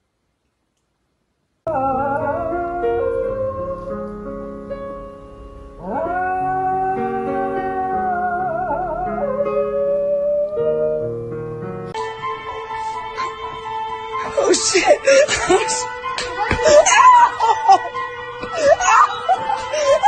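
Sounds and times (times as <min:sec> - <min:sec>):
dog howling: 0:05.8 - 0:11.1, 0:18.6 - 0:20.0.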